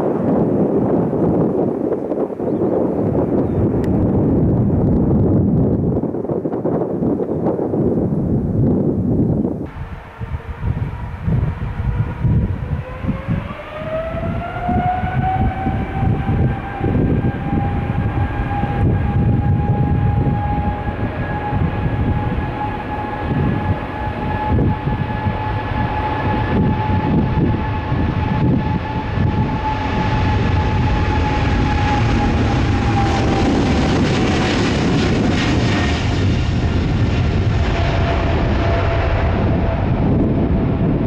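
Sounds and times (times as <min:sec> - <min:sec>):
low rumble: 0:00.0 - 0:06.2, 0:07.8 - 0:41.0
jet engines spooling up: 0:09.7 - 0:41.0.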